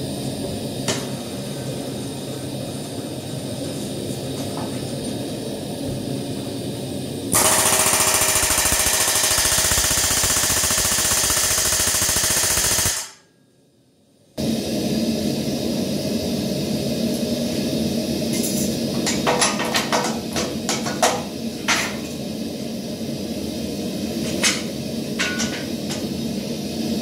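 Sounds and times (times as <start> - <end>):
steady machine noise: 0.0 - 13.2
pneumatic rivet hammer: 7.4 - 13.2.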